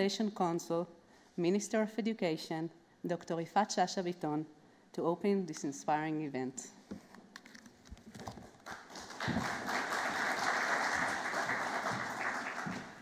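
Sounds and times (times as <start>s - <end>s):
audience applauding: 8.6s - 13.0s.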